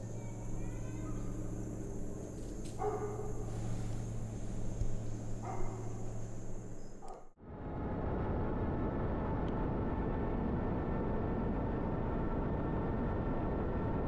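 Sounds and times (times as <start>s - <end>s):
steady low hum: 0.0s - 14.0s
dog barking: 2.6s - 4.3s, 5.2s - 7.3s.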